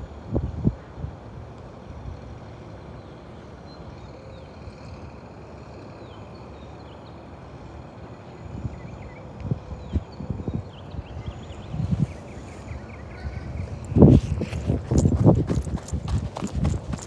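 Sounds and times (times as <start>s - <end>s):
truck engine running: 13.5s - 17.0s.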